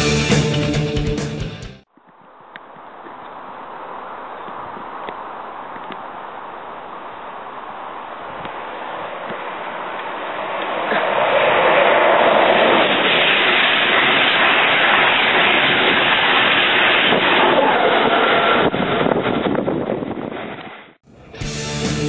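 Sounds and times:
express train passing at speed: 8.6s - 18.6s.

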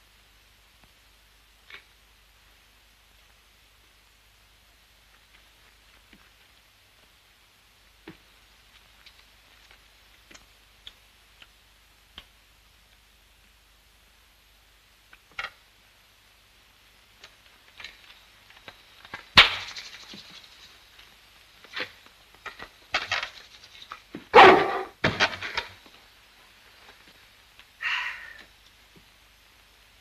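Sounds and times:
dog barking: 24.3s - 24.9s.

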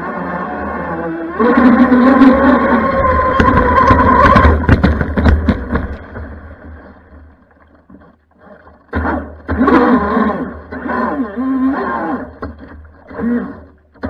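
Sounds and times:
electric motor whining: 0.0s - 4.8s
water rushing on hull: 0.0s - 10.8s.

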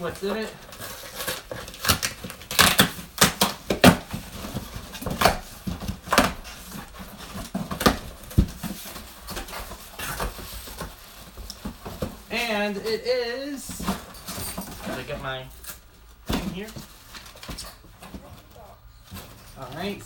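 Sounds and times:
contents rustling: 0.0s - 20.0s
cardboard box tearing open: 0.3s - 5.4s.

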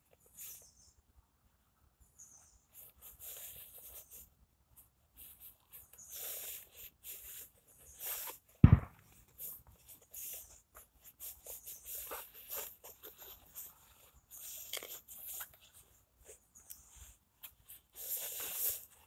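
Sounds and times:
rope rustling and scraping: 2.3s - 19.0s
deep thump: 8.6s - 9.0s.

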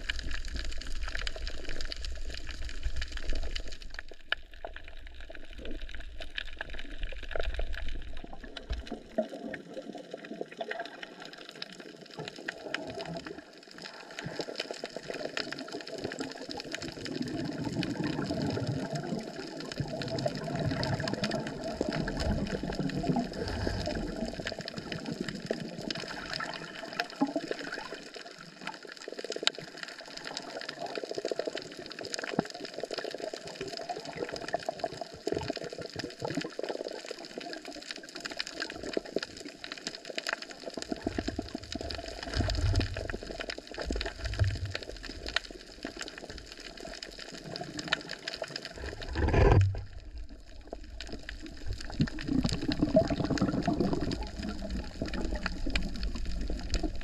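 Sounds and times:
water splashing and sloshing: 16.8s - 28.3s, 38.3s - 57.0s.

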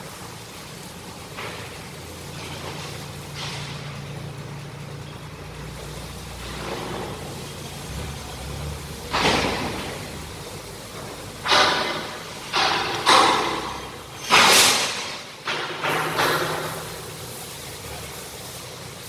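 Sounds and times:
machinery humming: 0.0s - 19.0s.

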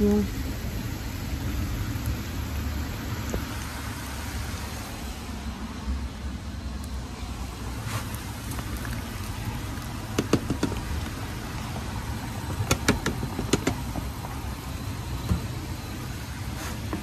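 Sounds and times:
plastic tub tapping on frying pan: 10.1s - 10.8s.

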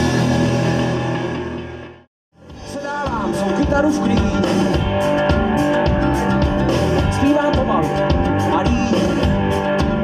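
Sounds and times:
folk-rock band playing: 0.0s - 10.0s
drum kit beat: 2.4s - 10.0s.

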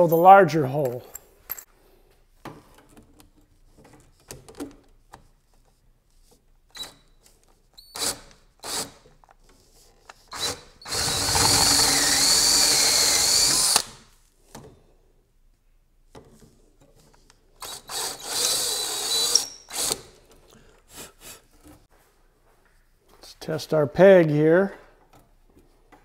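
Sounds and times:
power drill boring into wood: 10.3s - 14.0s, 17.6s - 20.0s.

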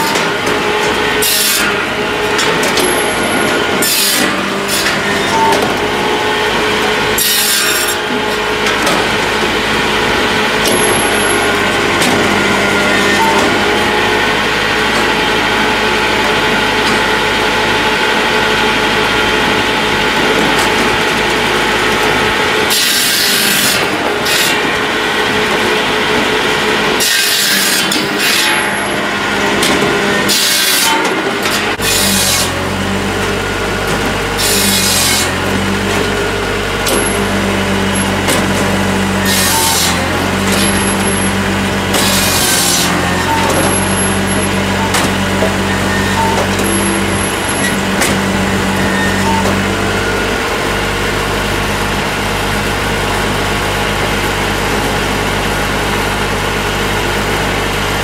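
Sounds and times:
firewood processor running: 0.0s - 58.0s
saw cutting bursts: 21.0s - 32.9s.

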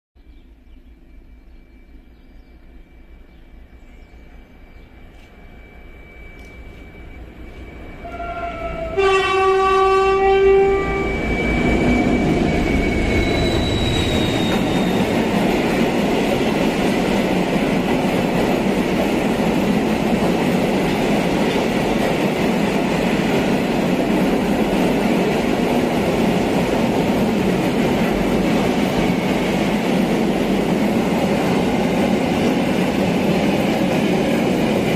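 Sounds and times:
freight wagons rumbling on rails: 3.2s - 34.9s
train horn blast: 7.5s - 12.2s.

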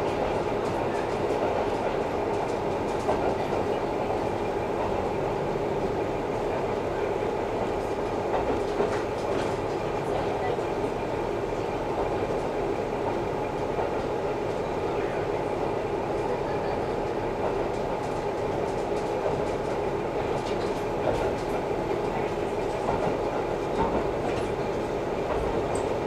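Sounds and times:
rail-joint clicks: 0.0s - 5.0s, 7.5s - 10.7s, 16.1s - 26.0s
railcar engine and wheel noise: 0.0s - 26.0s.

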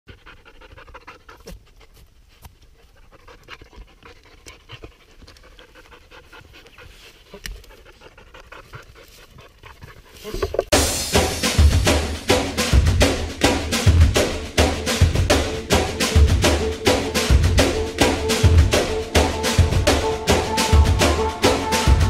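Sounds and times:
dog panting: 0.1s - 10.7s.

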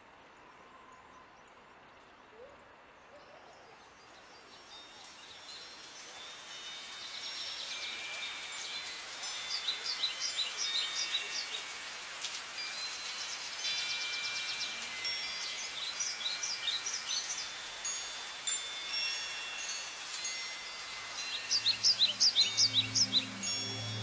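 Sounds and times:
steady hiss: 4.2s - 24.0s
ringing chime-like tones: 4.5s - 24.0s
high bird-like chirps: 4.8s - 11.8s, 19.6s - 24.0s.

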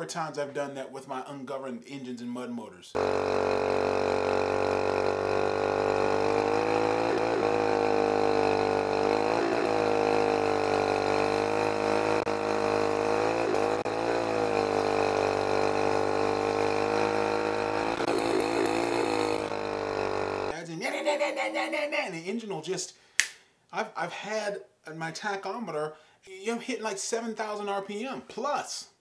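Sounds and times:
outboard boat motor running: 3.0s - 20.5s.

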